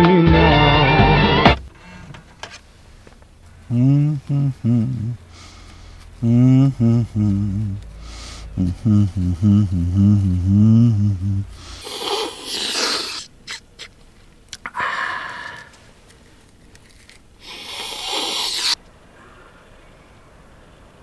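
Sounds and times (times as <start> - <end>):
man sniffing harshly: 5.3 - 6.1, 7.9 - 8.6, 11.5 - 13.6, 17.4 - 18.8.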